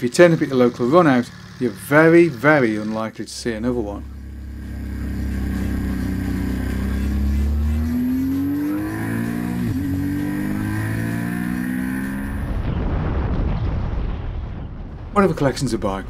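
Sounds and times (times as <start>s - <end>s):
motorcycle engine accelerating: 0.0s - 12.8s.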